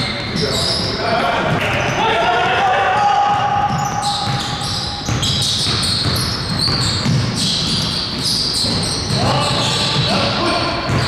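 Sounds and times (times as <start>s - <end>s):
sneakers squeaking: 0.0s - 11.0s
basketball bouncing: 3.2s - 11.0s.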